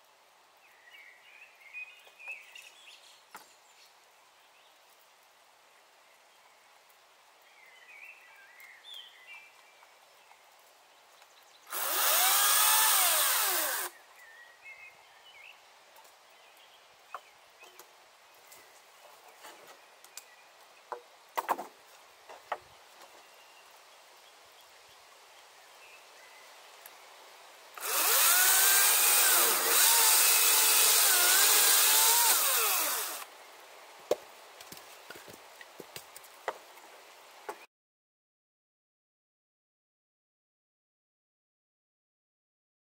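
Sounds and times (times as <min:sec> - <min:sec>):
chainsaw cutting logs: 0:11.7 - 0:13.9, 0:27.8 - 0:33.3.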